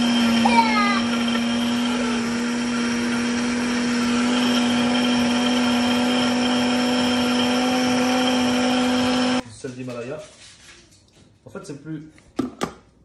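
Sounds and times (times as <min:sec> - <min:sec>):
blender motor running: 0:00.0 - 0:09.4.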